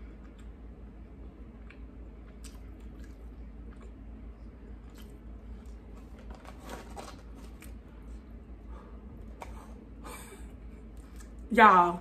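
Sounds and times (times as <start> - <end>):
person chewing crunchy food: 1.5 - 7.8.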